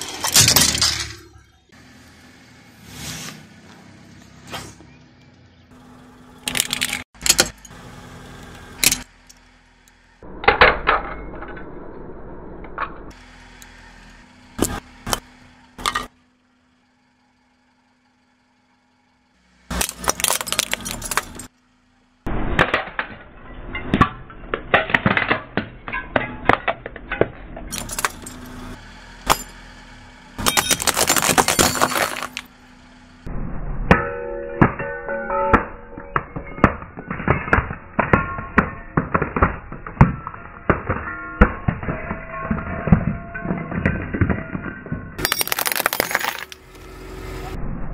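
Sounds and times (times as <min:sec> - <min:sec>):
plastic and metal crushing: 0:06.4 - 0:07.6, 0:19.7 - 0:21.5, 0:22.6 - 0:28.4, 0:30.4 - 0:32.5, 0:35.5 - 0:46.6
glass bulbs cracking and shattering: 0:19.7 - 0:21.5, 0:27.7 - 0:29.6, 0:30.4 - 0:32.5, 0:36.2 - 0:46.6.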